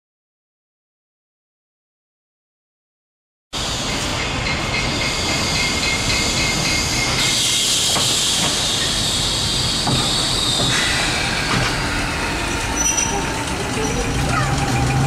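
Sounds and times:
tram rumbling along track: 3.6s - 15.0s.

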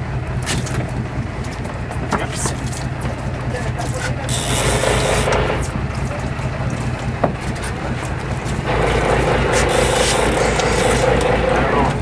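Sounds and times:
boat engine running: 0.0s - 12.0s
wind: 0.0s - 12.0s
water noise: 4.2s - 12.0s.

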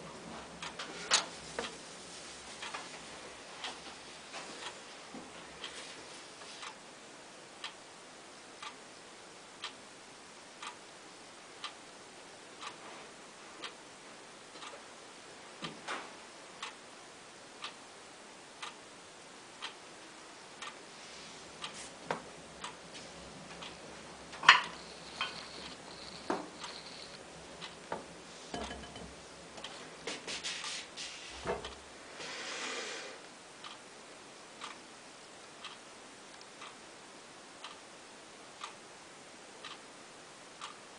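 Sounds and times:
steady ticking: 22.4s - 29.8s.

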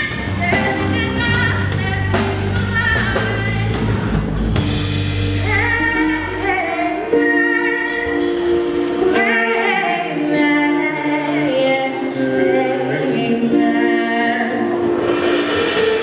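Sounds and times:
woman singing with a band: 0.0s - 4.0s, 9.0s - 14.9s.

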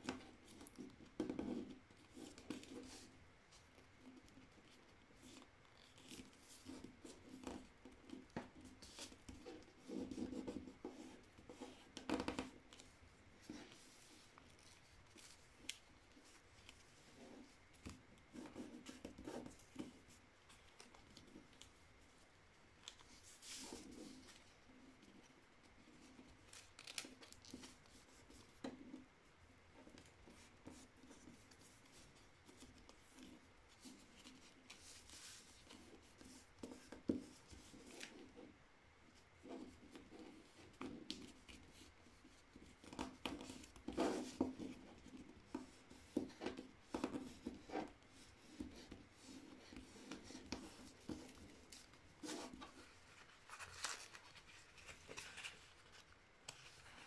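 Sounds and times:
paper rustling and crinkling: 25.8s - 28.5s, 46.2s - 57.0s.

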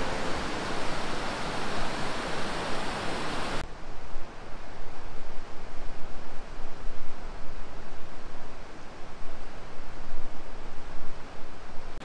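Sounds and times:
stream rushing over rocks: 0.0s - 3.6s.

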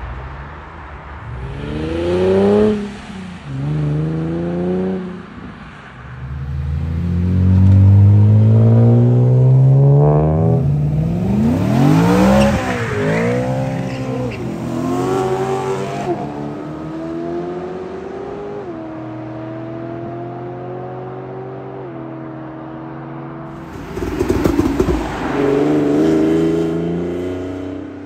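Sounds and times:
sports car engines revving: 1.2s - 5.4s, 6.1s - 28.0s
car accelerating through gears: 6.4s - 21.5s
car passing with rough crackling: 23.5s - 28.0s.

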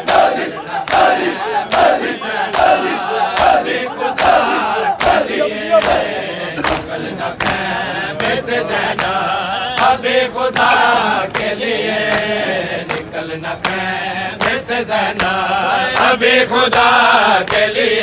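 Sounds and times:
hands slapping bare chests: 0.0s - 8.4s
crowd chanting together: 0.0s - 18.0s.

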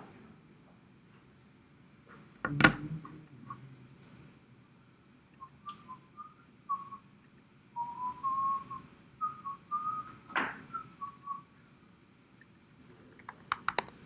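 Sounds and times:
person whistling a tune: 5.4s - 7.0s, 7.8s - 11.5s.

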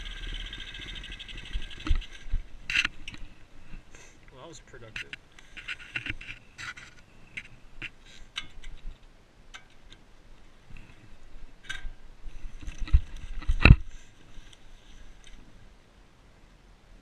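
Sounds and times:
camera handling clicks and rubs: 1.8s - 3.3s, 5.0s - 9.0s.

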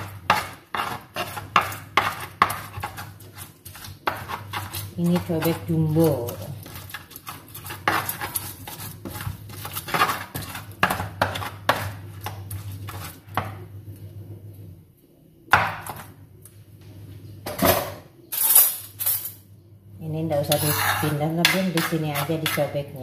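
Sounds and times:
pestle grinding in stone mortar: 0.0s - 13.5s.

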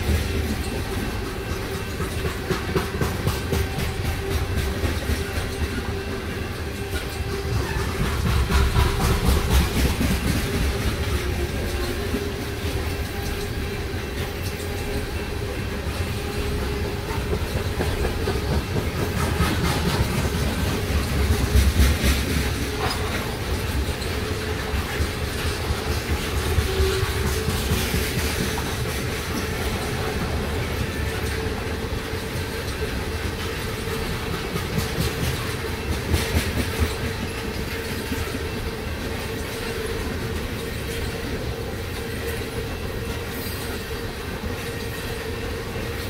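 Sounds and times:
train wheels rumbling and clacking: 0.0s - 46.0s.

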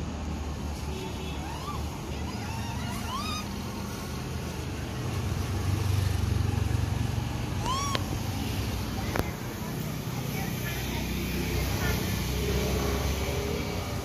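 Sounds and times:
monkeys giving high calls: 1.0s - 4.6s, 7.5s - 8.4s.

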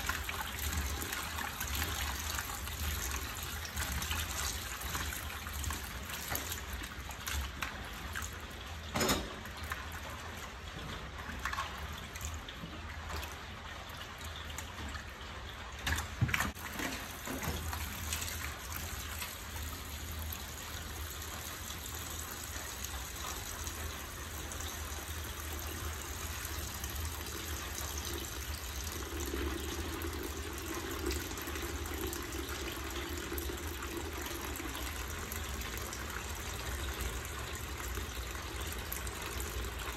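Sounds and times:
tap water running into basin: 0.0s - 39.9s.

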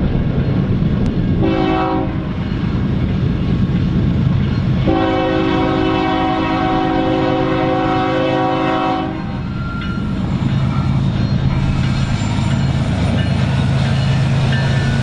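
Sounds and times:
locomotive horn blast: 1.4s - 2.4s, 4.8s - 9.4s.

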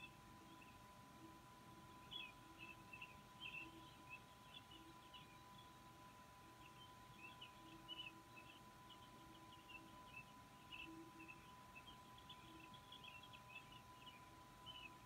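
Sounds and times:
faint electronic hum: 0.0s - 15.0s
chicks peeping: 6.5s - 15.0s.

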